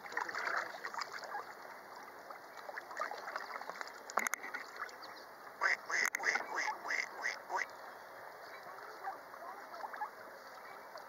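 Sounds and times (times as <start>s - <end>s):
lake water wash: 0.0s - 11.0s
mallards quacking: 5.6s - 7.7s.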